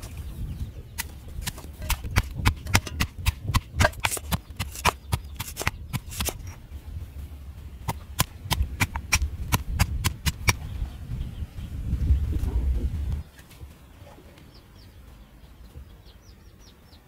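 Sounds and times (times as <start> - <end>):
pestle pounding in stone mortar: 1.4 - 6.4.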